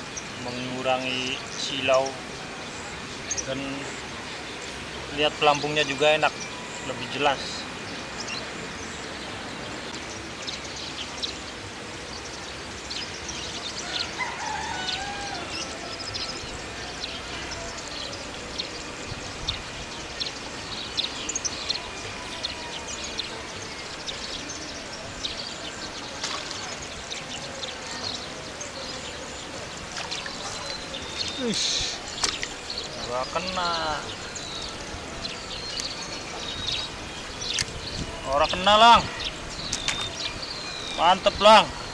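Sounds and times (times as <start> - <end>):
bird chirps: 13.0 - 41.9
background hiss: 16.0 - 41.9.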